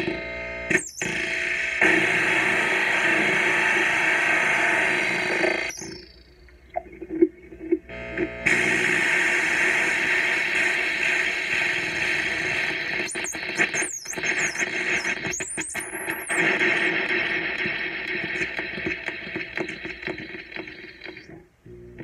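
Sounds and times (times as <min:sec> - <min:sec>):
noise synth static hiss: 0:00.0 - 0:22.0
high squealing synth tones: 0:11.8 - 0:16.9.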